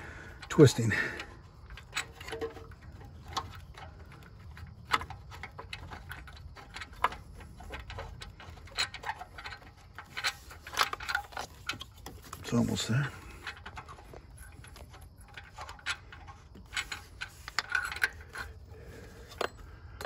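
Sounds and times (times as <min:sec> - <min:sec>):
small clicks and ticks: 0:00.0 - 0:20.0.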